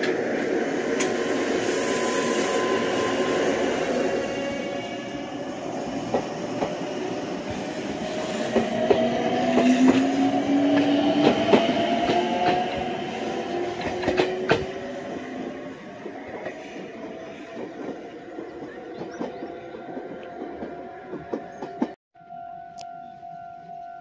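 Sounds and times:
train wheels clicking over rail joints: 5.9s - 6.9s, 8.5s - 22.0s.

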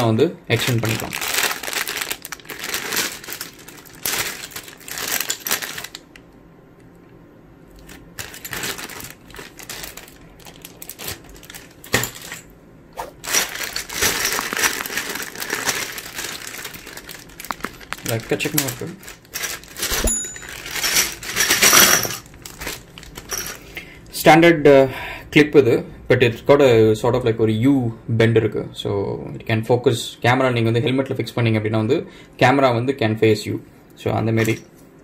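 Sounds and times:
plastic bags crinkling: 0.6s - 6.2s, 7.8s - 12.5s, 13.1s - 23.8s.

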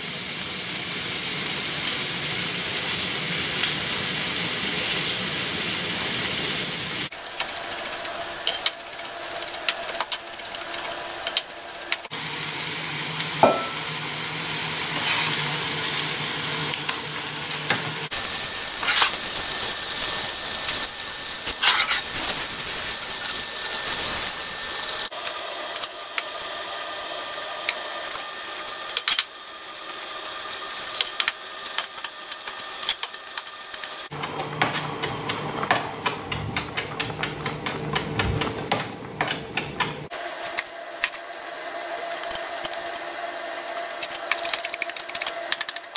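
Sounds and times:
fish sizzling in a pan: 0.0s - 34.2s
metal utensils scraping a pan: 14.9s - 15.4s, 18.8s - 19.3s, 21.5s - 22.4s.

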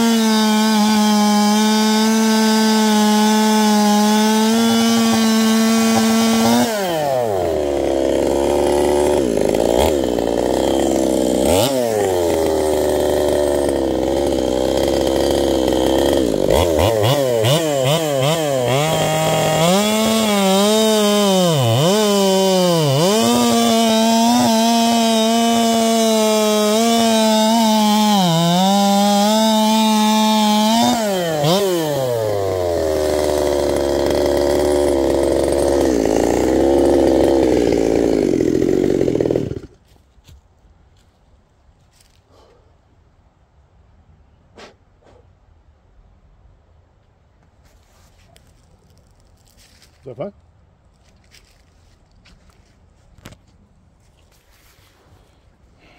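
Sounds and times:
chainsaw running: 0.0s - 39.8s
chainsaw cutting log: 0.0s - 39.9s.

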